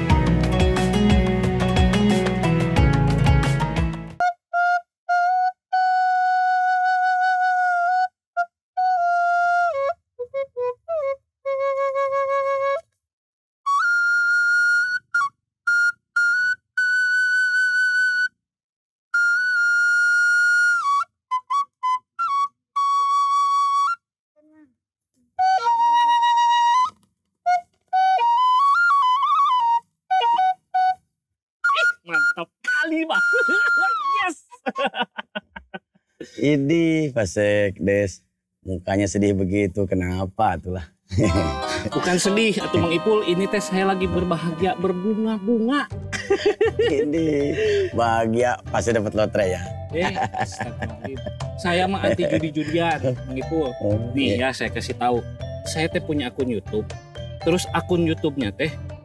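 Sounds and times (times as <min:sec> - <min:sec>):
bamboo flute melody: 0:04.2 - 0:13.0, 0:13.7 - 0:18.4, 0:19.1 - 0:24.1, 0:25.4 - 0:34.3, 0:41.2 - 0:49.0, 0:49.6 - 0:56.8.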